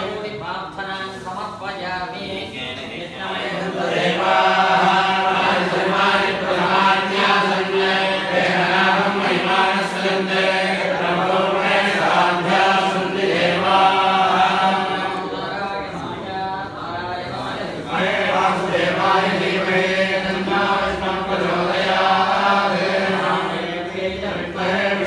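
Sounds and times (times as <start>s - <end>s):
men chanting together: 2.3s - 25.0s.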